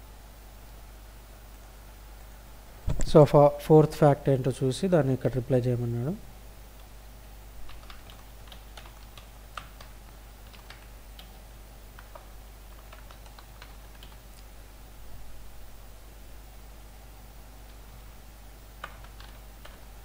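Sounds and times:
faint low hum: 0:00.0 - 0:20.0
typing on computer keyboard: 0:07.7 - 0:11.4, 0:12.0 - 0:14.2, 0:18.8 - 0:19.9.

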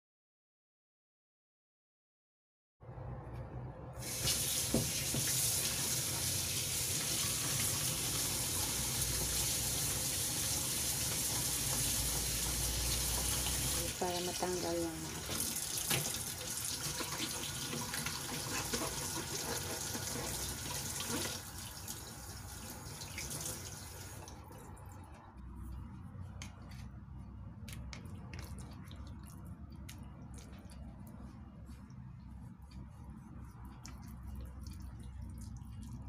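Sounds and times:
tap running into steel sink: 0:04.1 - 0:05.4
water dripping: 0:27.6 - 0:36.0.

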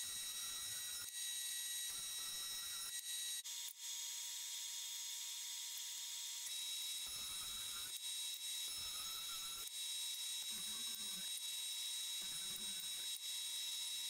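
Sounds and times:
jointer planer whining: 0:08.6 - 0:11.4.

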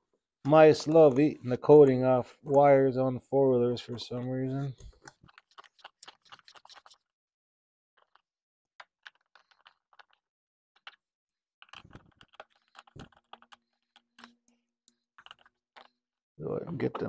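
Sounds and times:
clicks and rattles of plastic connectors: 0:04.8 - 0:07.0, 0:11.6 - 0:16.0.

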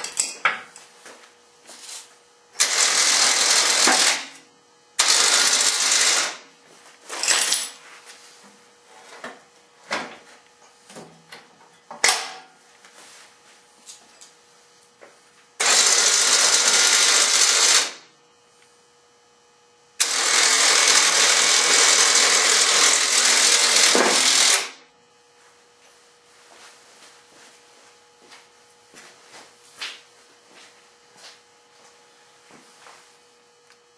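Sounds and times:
clicks and knocks of metal hardware: 0:00.0 - 0:00.8
electric winch running: 0:02.6 - 0:06.5, 0:15.6 - 0:18.2, 0:20.0 - 0:24.9.

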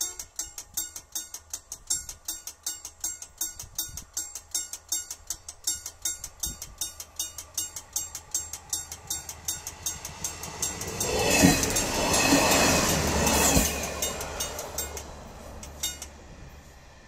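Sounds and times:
crossing warning bell dinging: 0:00.0 - 0:16.9
diesel railcar passing: 0:05.2 - 0:17.0
train wheels thudding: 0:05.7 - 0:16.2.

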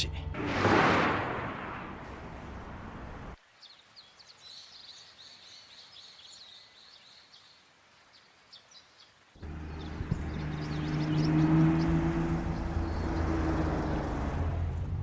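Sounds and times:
car passing: 0:00.4 - 0:03.4, 0:09.4 - 0:15.0
birds chirping and trilling: 0:03.5 - 0:14.1.

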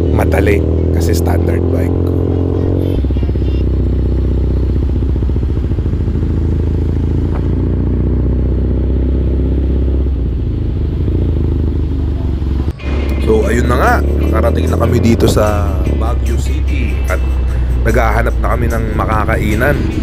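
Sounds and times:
motorcycle engine running: 0:00.0 - 0:20.0.

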